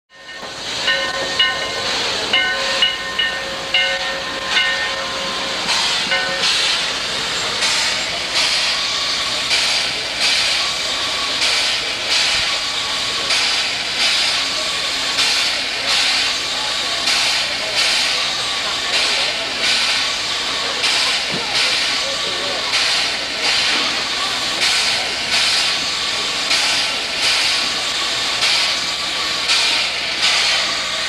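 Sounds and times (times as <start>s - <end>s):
bell ringing: 0.1s - 5.3s
steam locomotive hissing steam: 0.2s - 31.0s.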